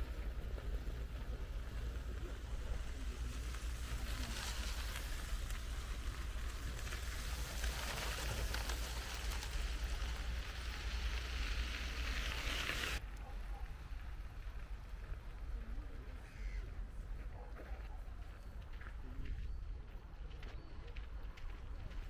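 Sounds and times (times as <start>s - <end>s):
hiss: 2.7s - 13.0s.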